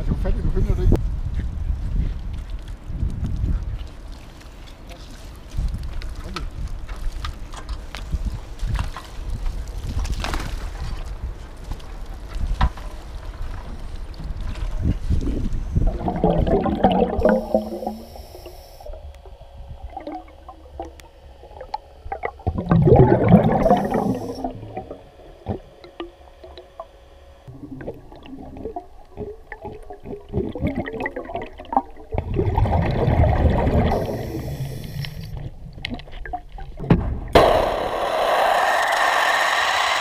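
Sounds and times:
gurgling exhaled bubbles: 15.0 - 25.8, 27.5 - 36.8
small bubble clicks: 15.8 - 26.9, 27.5 - 36.9
regulator hiss: 17.1 - 19.7, 23.4 - 27.5, 33.9 - 35.3, 37.4 - 40.0
loud steady noise: 37.4 - 40.0.

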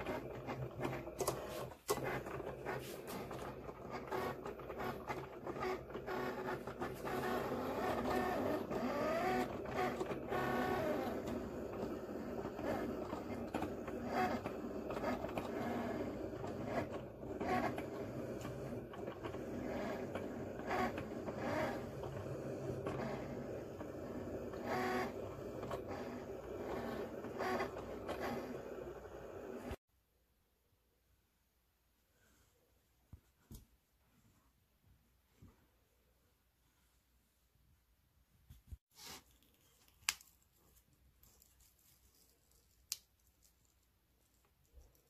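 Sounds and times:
cutting machine motors whirring: 0.0 - 29.8.

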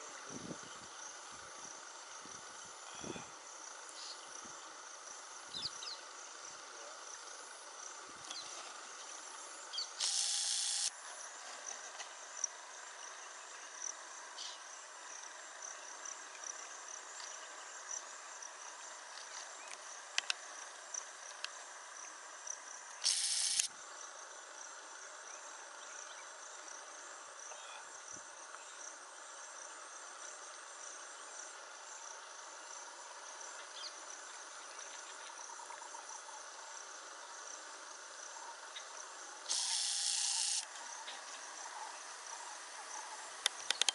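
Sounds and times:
insects chirping chorus: 0.0 - 43.9
soft outdoor hiss: 0.0 - 43.9
loud high buzzing bursts: 10.0 - 11.0, 23.0 - 23.7, 39.5 - 40.7.

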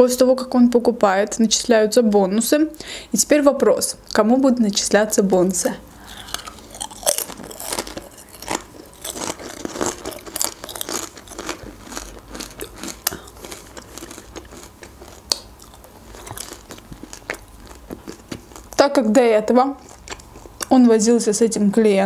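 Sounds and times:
person chewing crunchy food: 5.9 - 18.8, 19.6 - 20.8.

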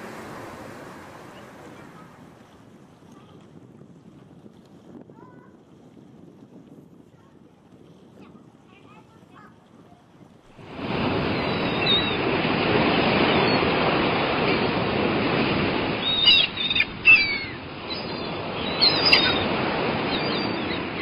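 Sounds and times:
river waves washing: 0.0 - 21.0
gulls calling: 10.6 - 21.0.

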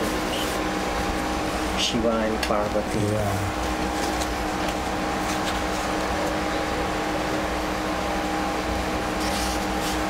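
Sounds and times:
steady mechanical hum: 0.0 - 10.0
paper sheets rustling: 4.0 - 6.0, 9.2 - 10.0.

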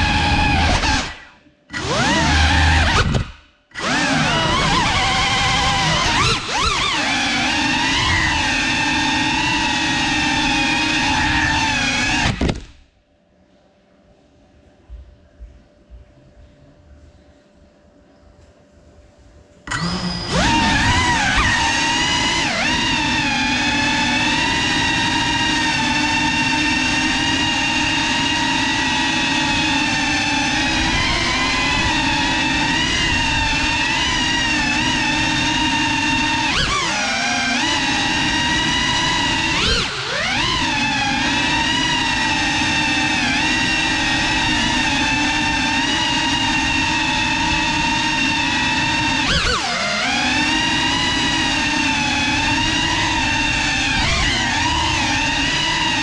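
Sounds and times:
drone motors whining: 0.0 - 12.9, 19.7 - 56.0.

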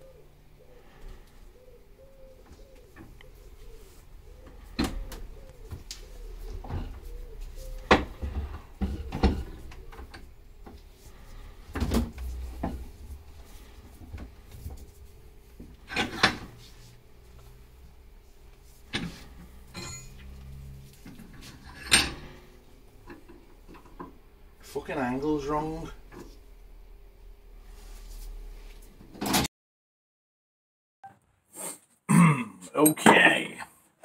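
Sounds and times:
metal tools clanking and knocking: 18.9 - 20.6, 21.3 - 22.4.

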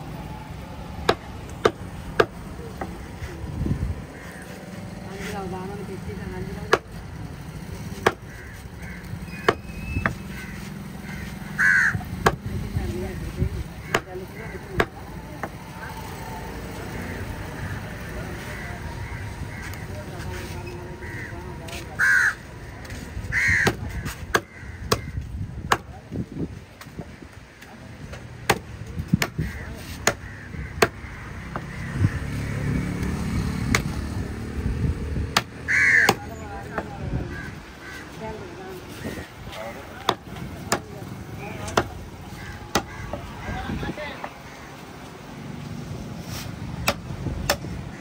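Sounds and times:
crow cawing: 4.1 - 5.3, 8.0 - 12.1, 13.8 - 15.0, 16.9 - 20.1, 20.9 - 25.3, 29.3 - 32.8, 35.6 - 38.2, 41.8 - 44.8
knife chopping on wooden block: 40.0 - 40.9.

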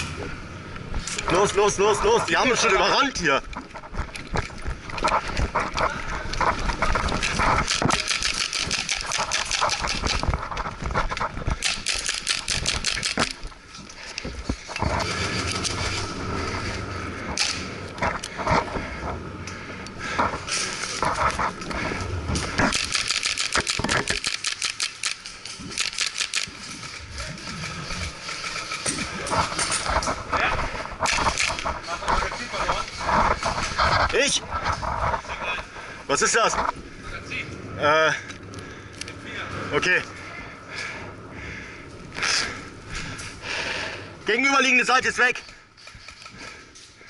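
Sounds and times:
airsoft guns clicking and knocking: 3.4 - 16.0, 17.4 - 18.6, 22.4 - 30.2, 31.0 - 32.3, 45.3 - 47.0
airsoft guns firing: 11.6 - 13.4.

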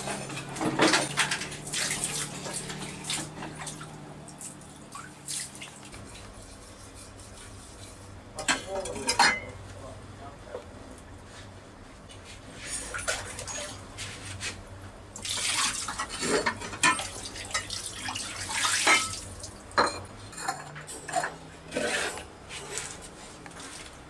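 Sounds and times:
water splashing: 1.5 - 6.0, 15.2 - 16.3, 16.9 - 19.7
dishes clinking: 8.4 - 9.6, 15.8 - 17.8, 18.7 - 19.2, 19.8 - 22.3.

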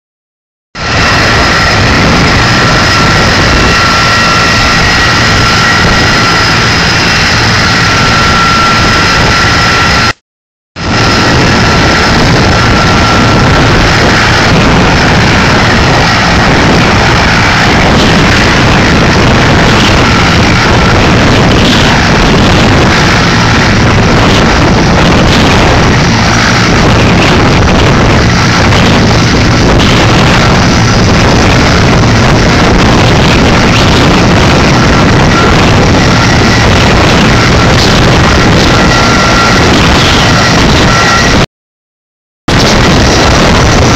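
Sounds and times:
helicopter engine whine: 0.8 - 10.2, 10.8 - 41.5, 42.5 - 43.9
rotor rumble: 0.8 - 10.2, 10.8 - 41.5, 42.5 - 43.9.

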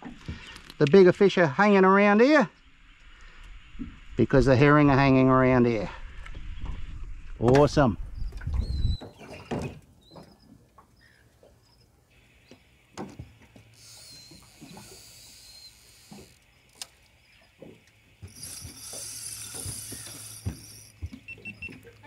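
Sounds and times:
fishing reel drag buzzing: 11.7 - 22.0.

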